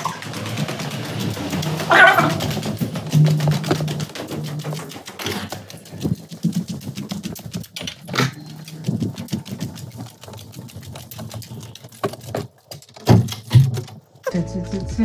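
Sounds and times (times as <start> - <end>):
footsteps on hard floor: 0.0 - 9.8
fast even clicking: 0.0 - 14.2.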